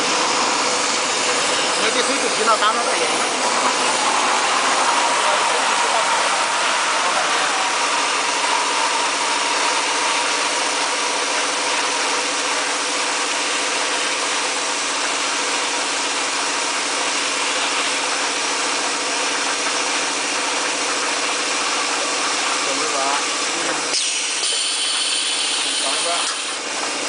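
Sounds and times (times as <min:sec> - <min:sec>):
bottling machine humming and hissing: 0:00.0 - 0:27.0.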